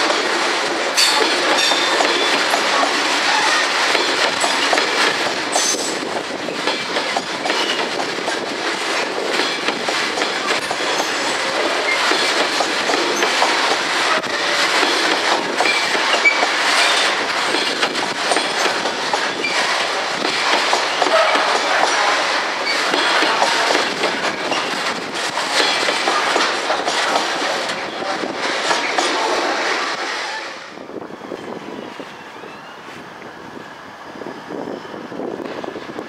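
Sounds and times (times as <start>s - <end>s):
train wheels clattering over track: 0.0s - 30.4s
wheel squeals: 15.6s - 17.0s.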